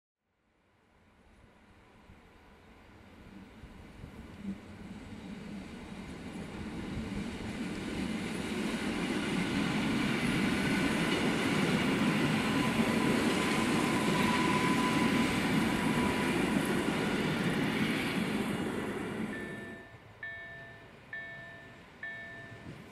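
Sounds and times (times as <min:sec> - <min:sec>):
train wheels rumbling on rails: 0:02.7 - 0:22.9.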